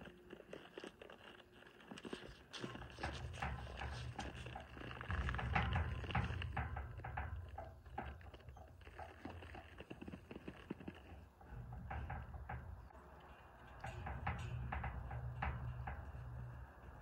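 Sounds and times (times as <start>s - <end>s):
hoof steps in dirt: 0.0s - 17.0s.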